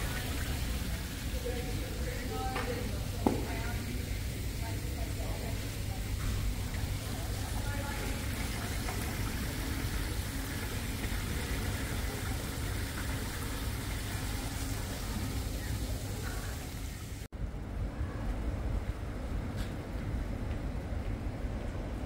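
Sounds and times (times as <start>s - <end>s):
faint murmur of voices: 0.0s - 9.8s, 14.2s - 19.0s
water running in stream: 0.0s - 17.3s.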